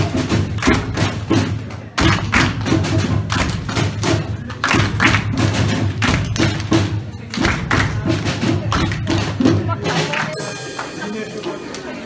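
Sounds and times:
hands slapping on bodies: 0:02.0 - 0:02.6.

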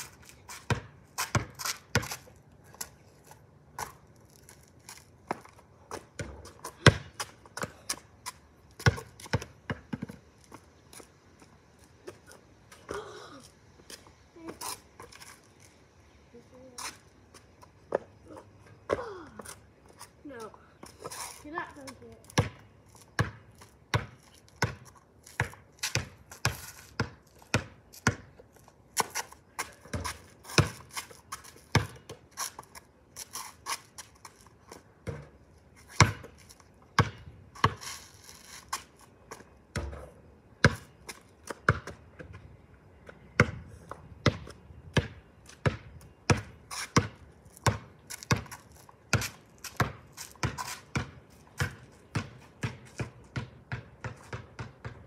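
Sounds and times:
basketball bouncing on concrete: 0:00.5 - 0:02.9, 0:05.3 - 0:10.3, 0:21.8 - 0:28.4, 0:29.0 - 0:32.5, 0:35.0 - 0:36.4, 0:37.0 - 0:37.8, 0:39.3 - 0:42.4, 0:43.0 - 0:55.0.

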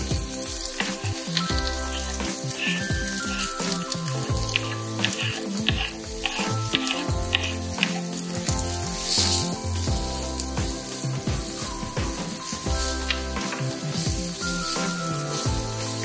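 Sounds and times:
soft background music: 0:00.0 - 0:16.0
vegetables sizzling in oil: 0:00.0 - 0:16.0
wooden spatula scraping and tapping: 0:00.6 - 0:09.6.

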